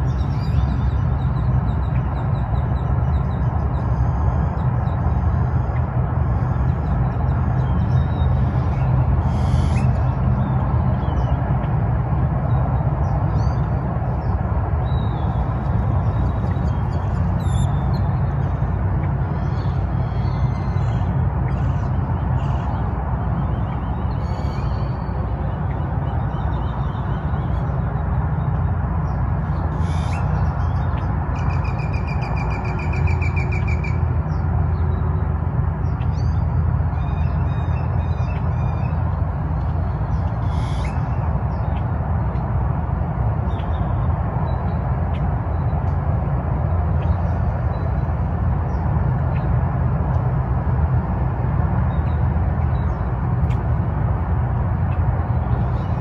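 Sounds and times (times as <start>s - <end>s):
steady low rumble: 0.0s - 56.0s
birds chirping: 35.8s - 42.4s.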